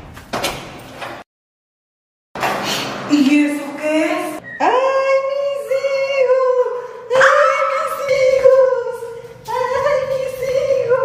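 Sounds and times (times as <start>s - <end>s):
high wordless singing voice: 3.1s - 11.0s.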